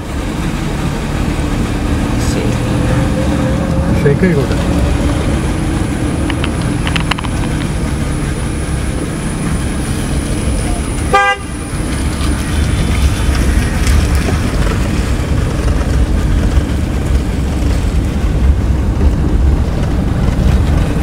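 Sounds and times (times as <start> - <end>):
bumpy road noise: 0.0 - 21.0
engine and tyre rumble: 0.0 - 21.0.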